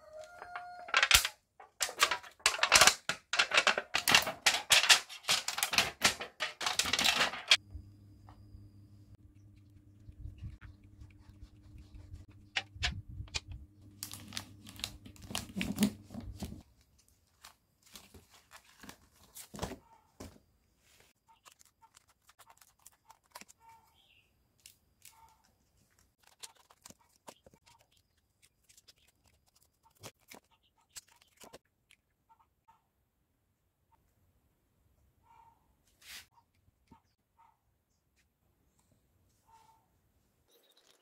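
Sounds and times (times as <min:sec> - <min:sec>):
low steady hum: 0:07.6 - 0:16.6.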